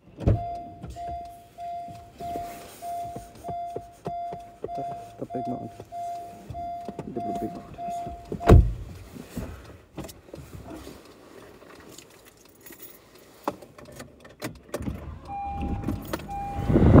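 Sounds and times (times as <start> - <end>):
short electronic beeps: 0.4 - 8.5, 15.3 - 17.0.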